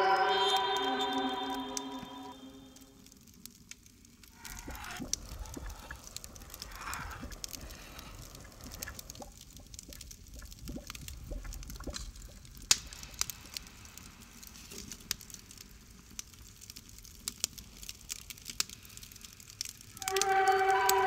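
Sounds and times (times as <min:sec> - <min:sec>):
liquid sloshing and bubbling: 0:03.9 - 0:15.4.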